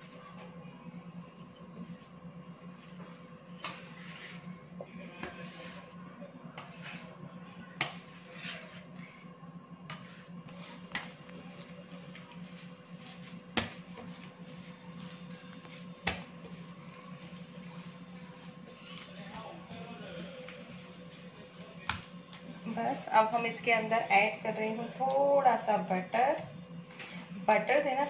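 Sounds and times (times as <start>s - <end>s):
steady low hum: 0.0s - 28.0s
dough pressing and rubbing: 1.6s - 9.2s, 9.8s - 23.1s.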